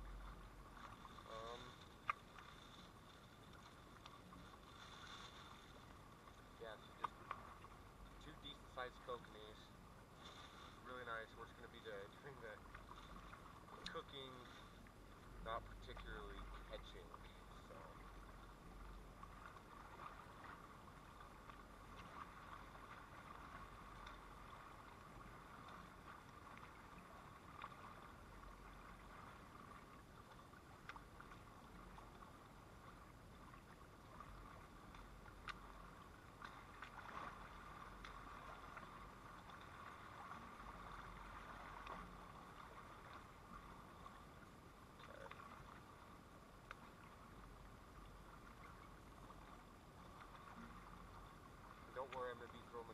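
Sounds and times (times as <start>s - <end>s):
water lapping at gravel shore: 0.0s - 52.9s
faint clicks: 0.8s - 4.5s, 6.2s - 9.2s, 10.9s - 15.0s, 30.2s - 32.2s, 34.8s - 35.8s, 37.9s - 39.7s, 46.6s - 47.0s.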